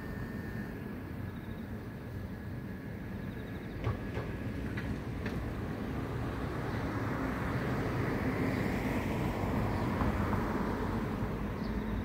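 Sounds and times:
insects chirping: 0.0 - 4.6
city traffic rumble: 0.0 - 12.0.

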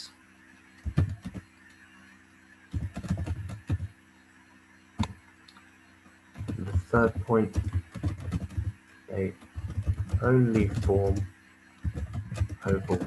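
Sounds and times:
faint steady hum: 0.0 - 13.0
typing on computer keyboard: 0.8 - 1.4, 2.7 - 3.9, 6.4 - 8.8, 9.4 - 11.2, 11.8 - 13.0.

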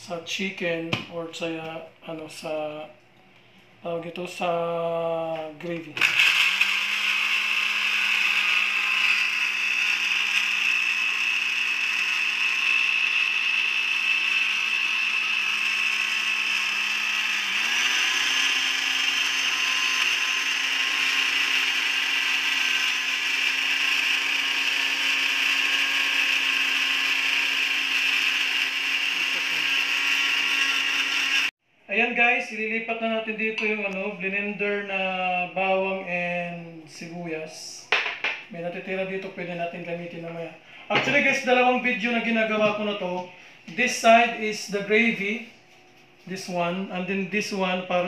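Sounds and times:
blender running: 6.0 - 31.5.

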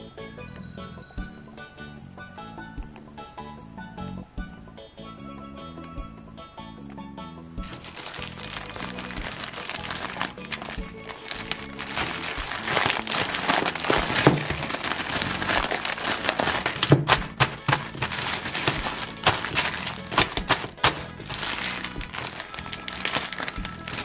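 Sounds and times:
background music: 0.0 - 24.0
plastic bag crinkling: 7.6 - 24.0.

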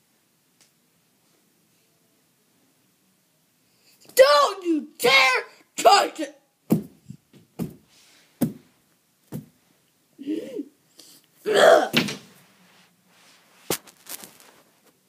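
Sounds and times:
loud voice-like sound: 4.2 - 6.4
soft thumps of toys on carpet: 9.3 - 9.6.

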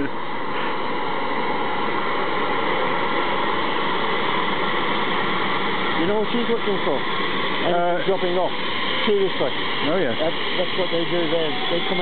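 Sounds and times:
helicopter turbine engines whining: 0.0 - 12.0
rotor rushing noise: 0.0 - 12.0
high steady tone: 4.1 - 12.0.

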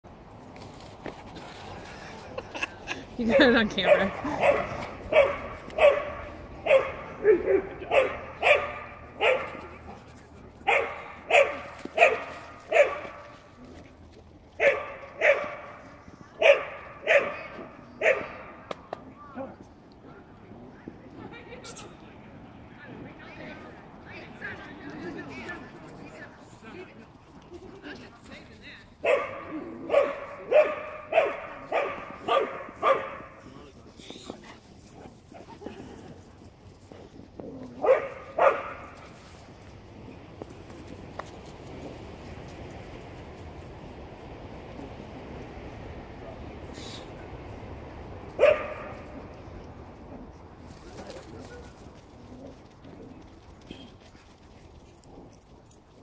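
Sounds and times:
dog barking: 3.9 - 9.7, 10.6 - 13.3, 14.6 - 15.8, 16.4 - 18.5, 29.0 - 33.3, 37.8 - 38.8, 48.4 - 49.0.

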